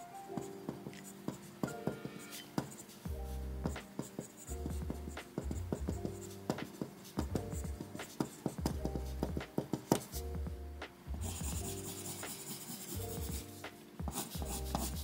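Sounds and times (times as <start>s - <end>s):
pencil scratching on paper: 0.4s - 10.2s, 11.2s - 15.0s
background music with bass: 3.1s - 3.8s, 4.5s - 6.6s, 7.2s - 9.6s, 10.2s - 12.3s, 12.9s - 15.0s.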